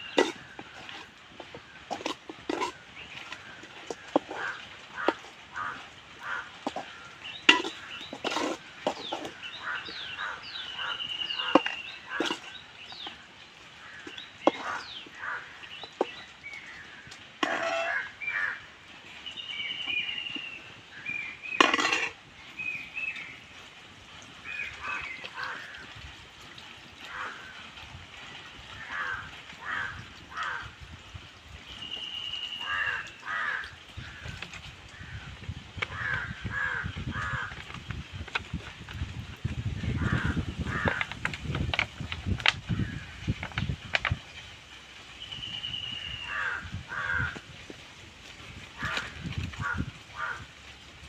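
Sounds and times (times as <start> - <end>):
birds chirping and whistling: 0.0 - 1.6, 6.7 - 13.2, 19.2 - 23.4, 31.7 - 33.1, 45.2 - 46.6
harsh bird calls: 0.0 - 23.4, 31.7 - 34.4, 45.2 - 47.4.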